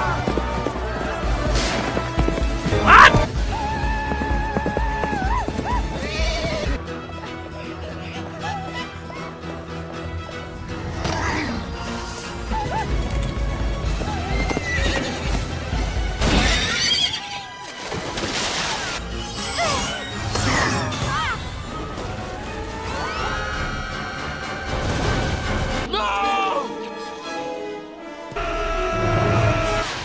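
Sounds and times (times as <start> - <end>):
orchestral film music: 0.0 - 30.0
horses whinnying: 2.7 - 6.8, 14.0 - 15.4.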